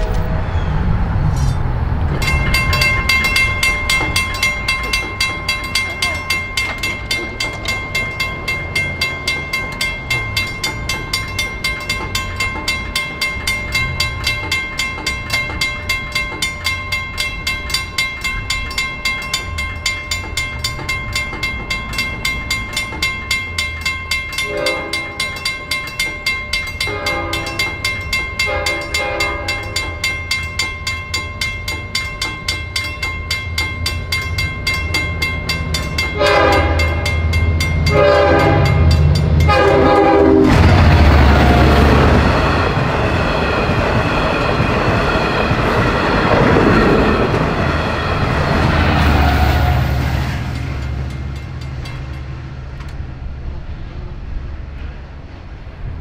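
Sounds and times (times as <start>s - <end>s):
railroad crossing bell ringing: 1.5s - 53.1s
train horn blasts: 24.4s - 25.3s, 26.8s - 27.8s, 28.4s - 29.8s, 36.1s - 37.2s, 37.8s - 42.3s.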